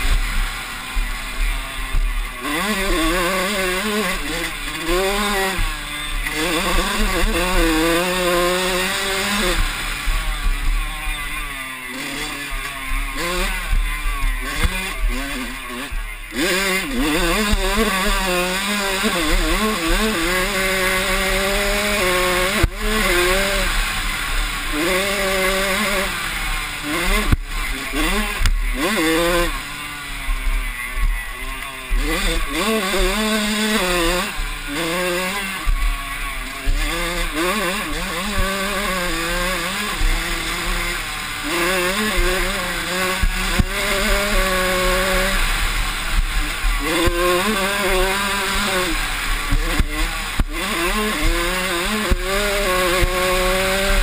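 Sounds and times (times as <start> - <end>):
dirt bike engine racing: 0.0 - 54.0
bike knocking on bumps: 21.4 - 24.6, 36.6 - 54.0.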